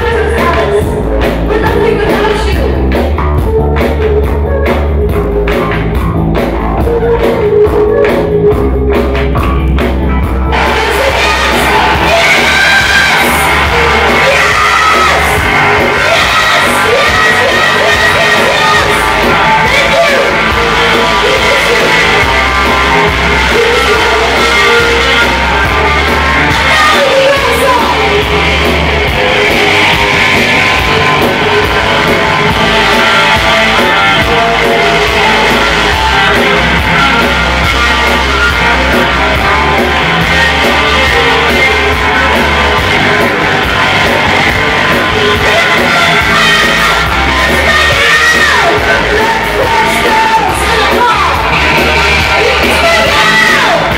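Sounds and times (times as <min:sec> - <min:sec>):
woman singing into a microphone: 0:00.0 - 0:02.8, 0:15.9 - 0:22.6, 0:26.5 - 0:28.3
electric bass guitar: 0:00.0 - 0:53.9
electric guitar: 0:00.0 - 0:53.9.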